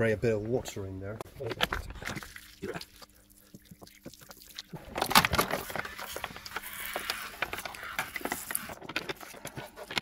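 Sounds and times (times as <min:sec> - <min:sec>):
water squirting and spattering: 0:01.7 - 0:08.8
plastic bottle crackling: 0:03.8 - 0:10.0.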